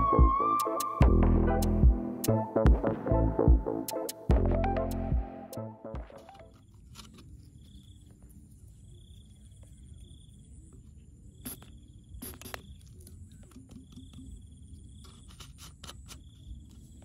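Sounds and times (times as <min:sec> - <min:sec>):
insect trilling: 0:11.3 - 0:17.0.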